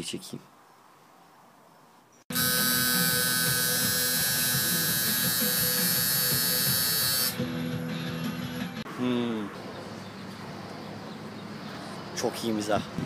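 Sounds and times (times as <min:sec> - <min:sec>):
electric motor buzz: 0:02.3 - 0:07.4.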